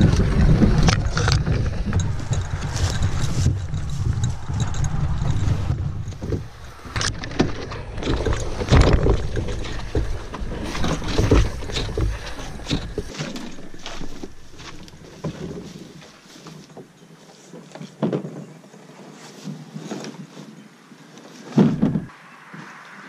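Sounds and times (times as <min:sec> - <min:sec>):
wind rumbling on microphone: 0:00.0 - 0:16.0
branches scraping canoe hull: 0:00.0 - 0:22.1
footsteps crunching through brush: 0:05.6 - 0:18.0.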